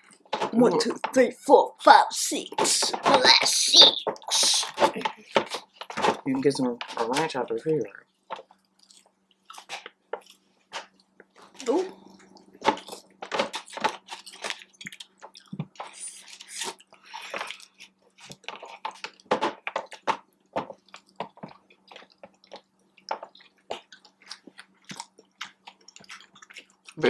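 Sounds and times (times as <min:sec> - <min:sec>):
faint steady hum: 0:00.0 - 0:27.0
wet chewing and lip-smacking: 0:07.9 - 0:27.0.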